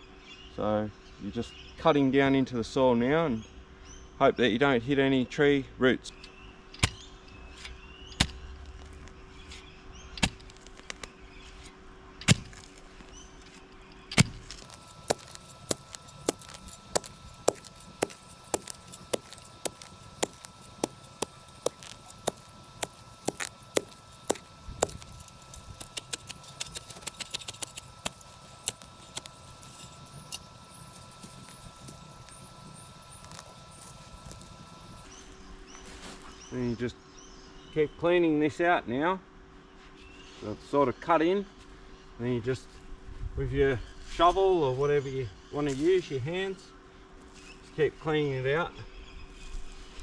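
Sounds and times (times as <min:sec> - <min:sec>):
shovel chopping into soil: 0:14.1 - 0:35.0.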